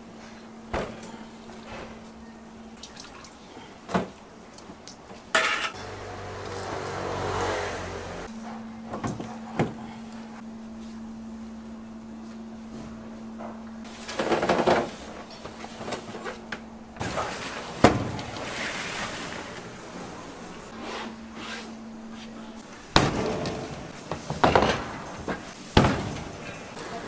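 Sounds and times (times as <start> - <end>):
kitchen knocks and bangs: 22.9 - 26.6.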